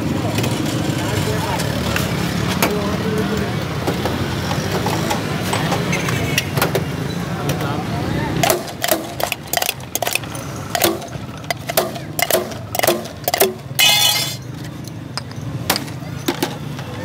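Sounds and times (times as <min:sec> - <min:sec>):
glass bottles clinking: 0:13.3 - 0:14.5.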